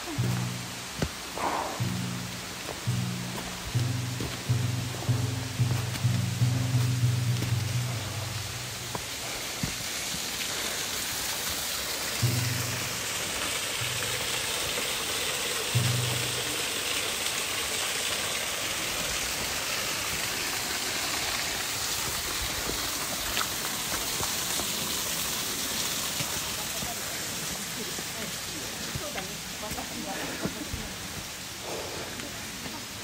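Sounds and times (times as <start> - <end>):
steady hiss of water: 0.0 - 33.0
deep background music notes: 0.1 - 8.9.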